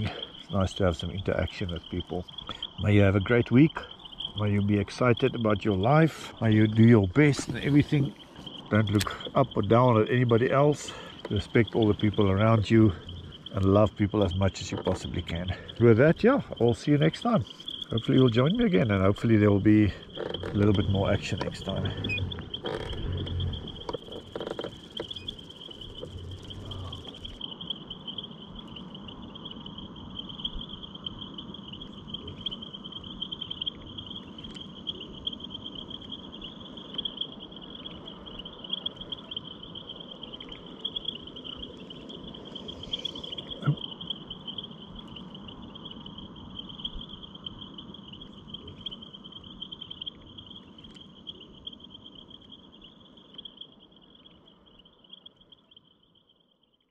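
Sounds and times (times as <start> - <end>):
crickets trilling: 0.0 - 56.9
faint clicks: 3.8 - 18.4, 19.0 - 27.4.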